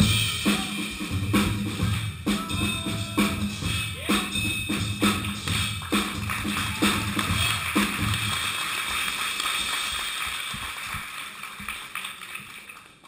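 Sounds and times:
drum kit playing: 0.0s - 9.1s.

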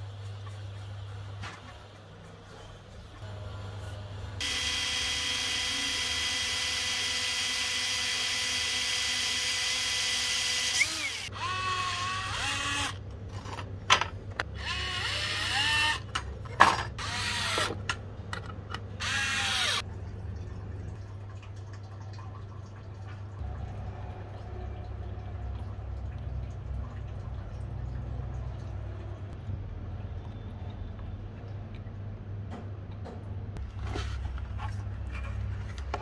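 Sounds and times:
cordless drill boring plastic: 4.4s - 13.0s, 14.6s - 16.0s, 17.0s - 17.8s, 19.0s - 19.8s
rotary tool trimming plastic: 4.4s - 13.0s.

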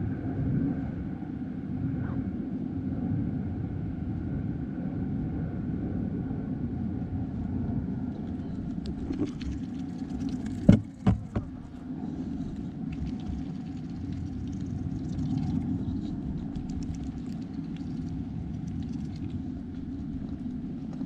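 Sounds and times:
steady low rumble: 0.0s - 21.0s
goose bill knocking on plastic bucket: 10.6s - 11.5s.

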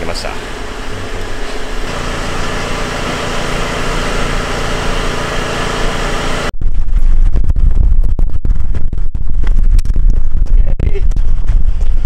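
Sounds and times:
gusty wind on microphone: 6.5s - 12.0s.

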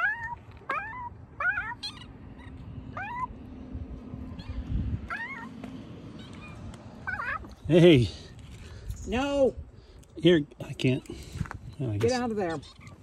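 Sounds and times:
cat meowing: 4.3s - 5.5s, 6.2s - 7.5s.

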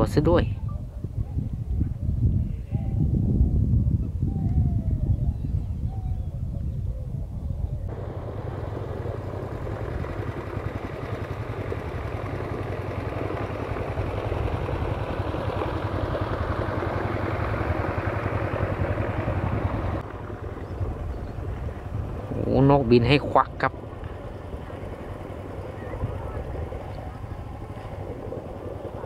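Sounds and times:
motorboat engine running: 7.9s - 29.0s.

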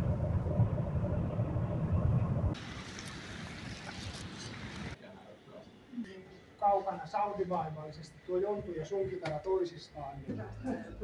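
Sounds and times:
car cabin road rumble: 0.0s - 2.8s
outdoor hiss: 2.6s - 5.0s.

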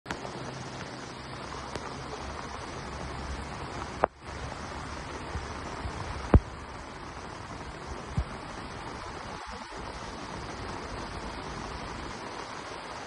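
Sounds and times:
heavy rain and floodwater rushing: 0.1s - 13.0s.

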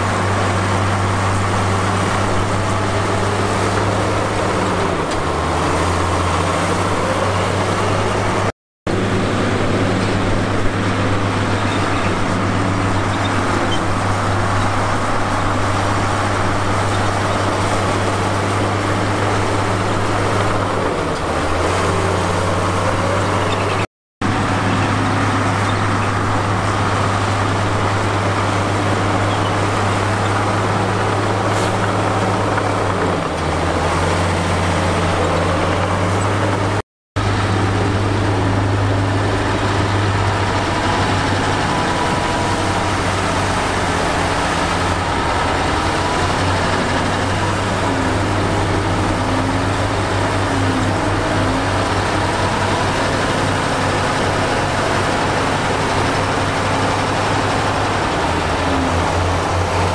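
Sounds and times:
heavy diesel engine humming: 0.0s - 59.9s.

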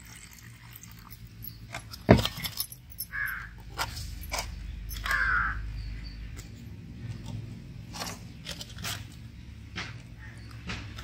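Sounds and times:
crow cawing: 3.1s - 3.5s, 5.0s - 5.6s.

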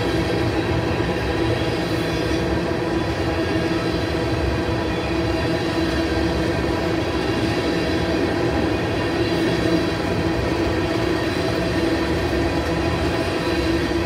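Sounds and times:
train wheels running on rail: 0.0s - 14.0s.

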